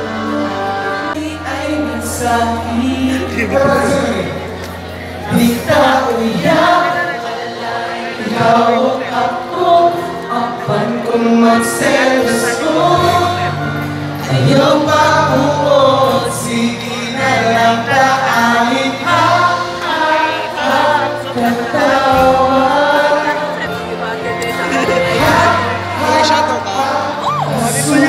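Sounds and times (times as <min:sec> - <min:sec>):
people singing along: 0:05.2 - 0:28.0.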